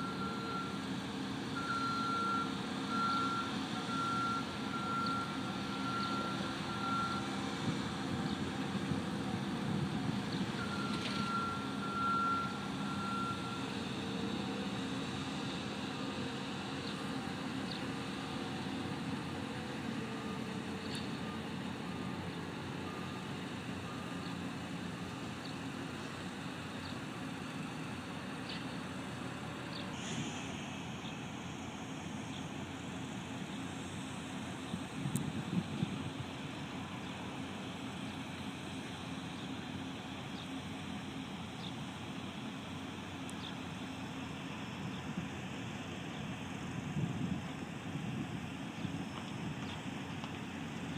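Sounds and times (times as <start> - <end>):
reversing alarm beeping: 0.0 - 0.8, 1.6 - 7.6, 10.4 - 14.0
diesel engine hum: 0.0 - 50.9.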